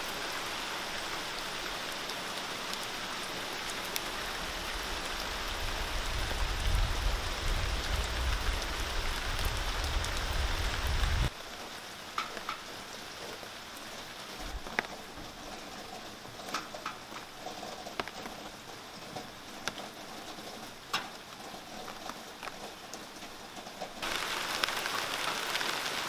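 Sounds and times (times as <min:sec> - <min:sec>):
drops ticking on leaves: 0:00.0 - 0:26.0
rain falling on a deck: 0:00.0 - 0:26.0.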